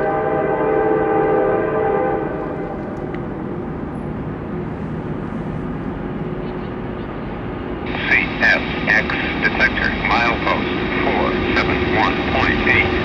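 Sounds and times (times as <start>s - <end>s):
train horn: 0.0s - 3.0s
train rumbling past: 0.0s - 13.0s.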